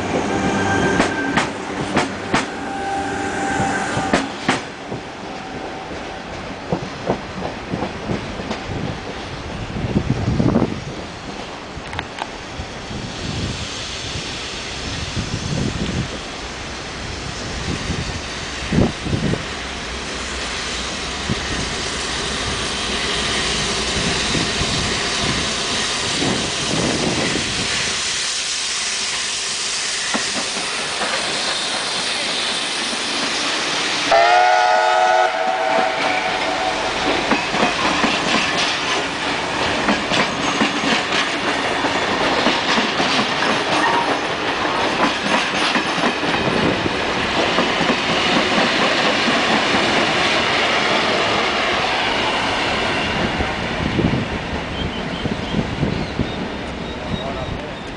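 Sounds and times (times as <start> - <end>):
steam locomotive rumble: 0.0 - 57.9
train whistle: 0.1 - 1.6, 2.2 - 4.3, 34.0 - 37.1.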